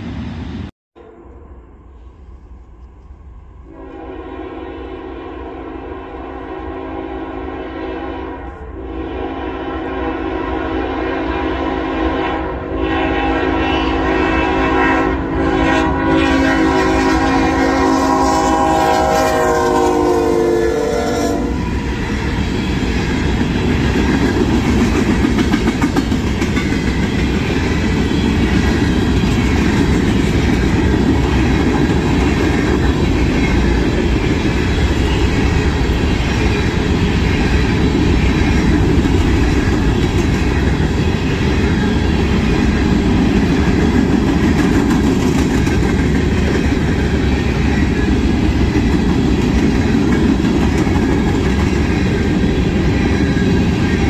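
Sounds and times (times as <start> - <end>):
freight train rumbling past: 0.0 - 54.0.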